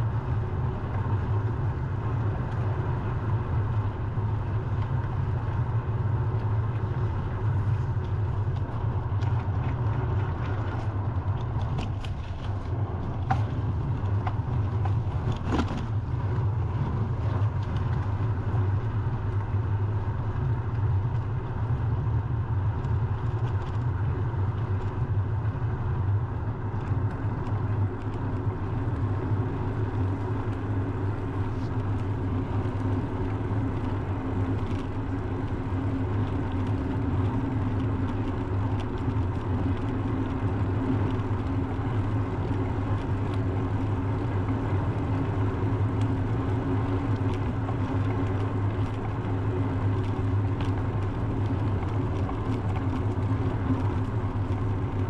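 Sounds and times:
wind and road noise: 0:00.0 - 0:55.0.

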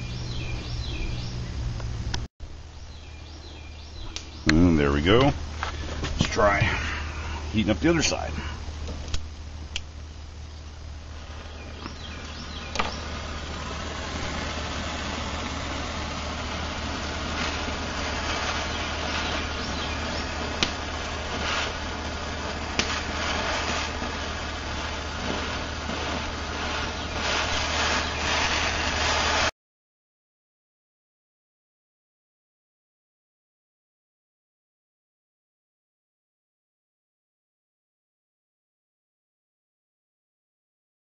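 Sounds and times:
gas torch flame hissing: 0:03.5 - 0:09.9, 0:11.0 - 0:29.5.

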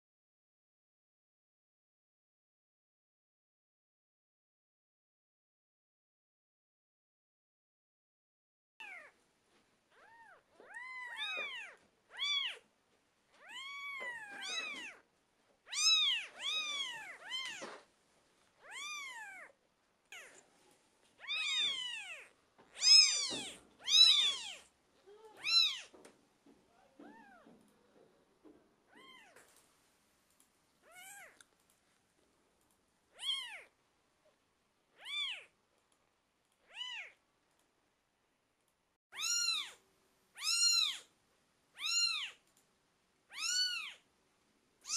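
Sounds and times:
kittens mewing: 0:21.2 - 0:26.0.

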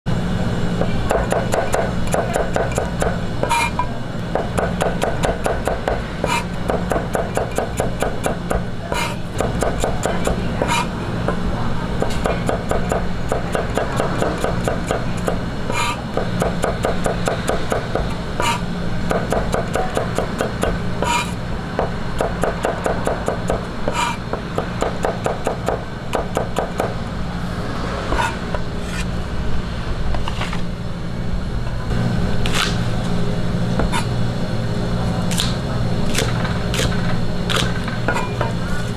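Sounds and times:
cleaver chopping on cutting board: 0:01.1 - 0:03.7, 0:04.4 - 0:10.9, 0:12.0 - 0:27.0.

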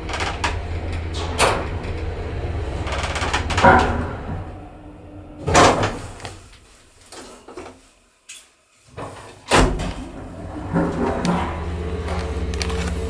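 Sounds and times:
elevator motor hum: 0:00.0 - 0:06.2, 0:09.6 - 0:13.0
loud elevator clunk: 0:00.0 - 0:06.2, 0:09.5 - 0:13.0.

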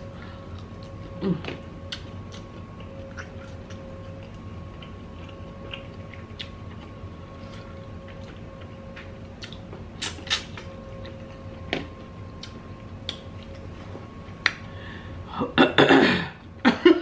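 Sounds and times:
faint steady hum: 0:00.0 - 0:17.0
wet mouth clicks and crunches: 0:09.4 - 0:10.7.

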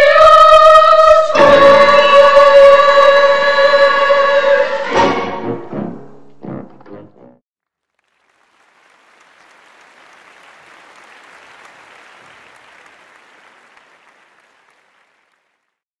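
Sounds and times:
audience applause: 0:07.8 - 0:15.8.

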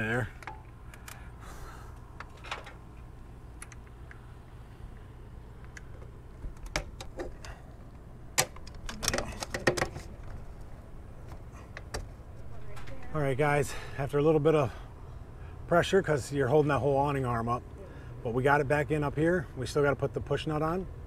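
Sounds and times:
steady low hum: 0:00.0 - 0:21.0
metal clicks and knocks: 0:08.4 - 0:10.4.

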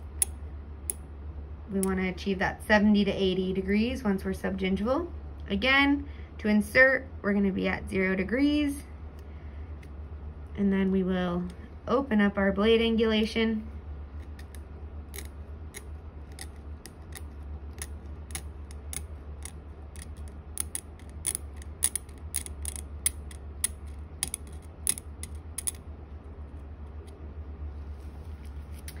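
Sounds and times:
steady low hum: 0:00.0 - 0:29.0
steel tip clicking on plastic teeth: 0:14.2 - 0:25.8.

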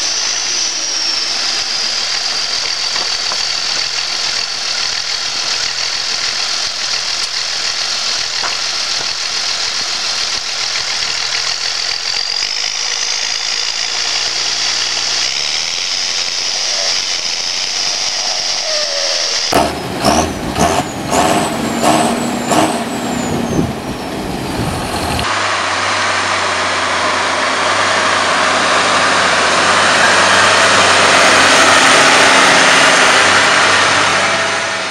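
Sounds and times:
tractor engine running: 0:00.0 - 0:34.9
short falling squeals: 0:12.2 - 0:24.1.

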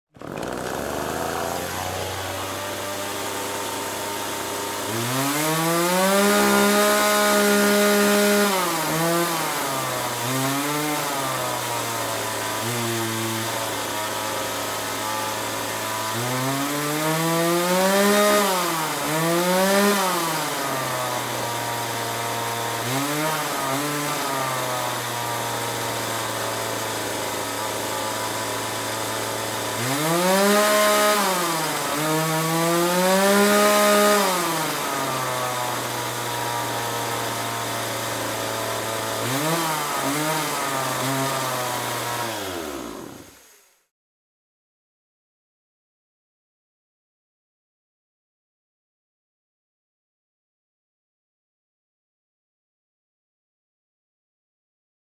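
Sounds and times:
chainsaw engine idling and revving: 0:00.1 - 0:43.7.

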